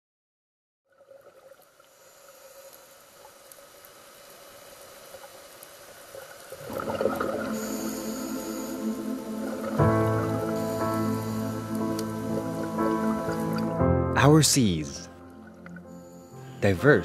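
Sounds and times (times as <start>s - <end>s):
water bubbling and trickling: 0.9s - 14.0s, 14.6s - 16.6s
soft sustained music: 6.6s - 17.0s.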